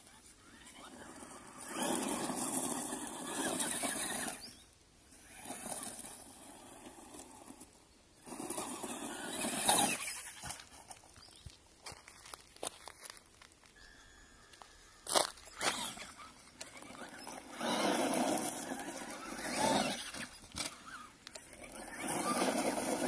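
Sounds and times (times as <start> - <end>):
tyres spinning on gravel: 0.0 - 13.8, 14.5 - 23.0
electric motor whine: 15.4 - 23.0.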